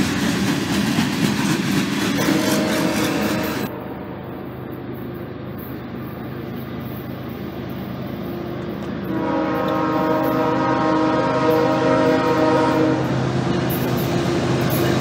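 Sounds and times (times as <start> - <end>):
freight train rumble: 0.0 - 15.0
locomotive air horn chord: 2.2 - 3.8, 9.0 - 13.2.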